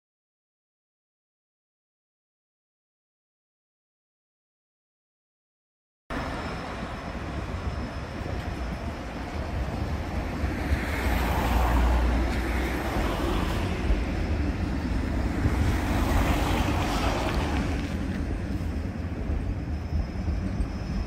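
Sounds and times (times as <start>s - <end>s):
tram rumbling on rails: 6.1s - 21.0s.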